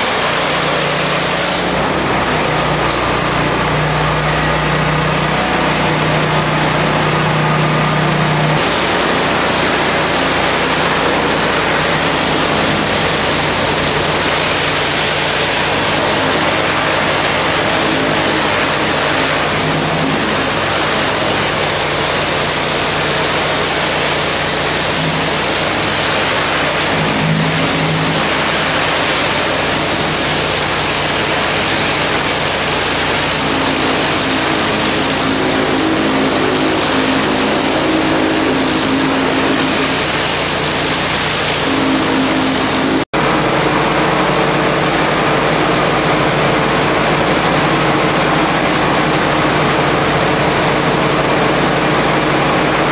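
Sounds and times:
pressure washer spray hissing: 0:00.0 - 0:01.8, 0:08.6 - 0:43.1.

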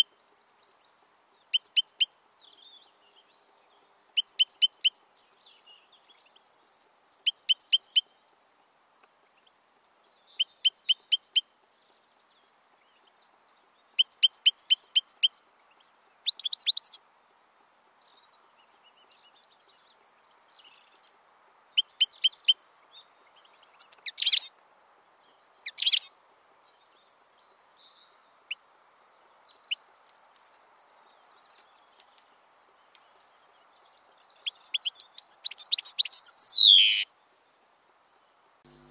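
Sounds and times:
goldfinch twittering: 0:34.5 - 0:37.0.

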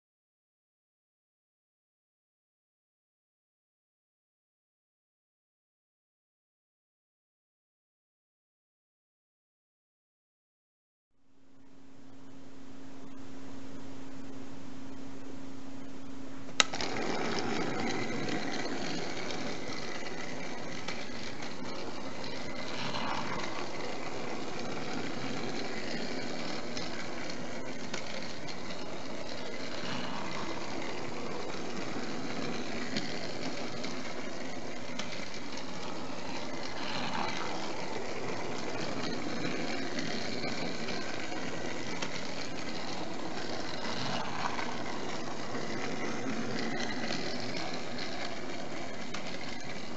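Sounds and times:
small toy motor running: 0:16.6 - 0:49.9.

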